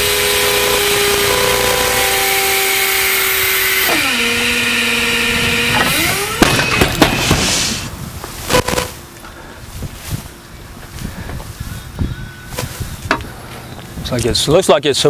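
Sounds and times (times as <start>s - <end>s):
forklift engine and hydraulics whining: 0.0s - 14.6s.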